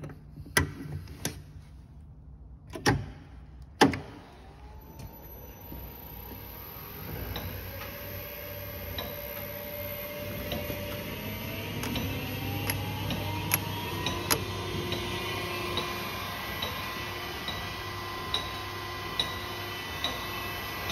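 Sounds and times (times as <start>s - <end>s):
electric motor whining: 4.3s - 20.9s.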